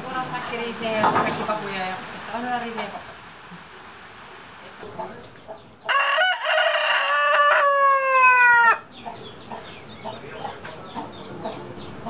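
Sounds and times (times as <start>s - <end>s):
rooster crowing: 5.9s - 8.9s.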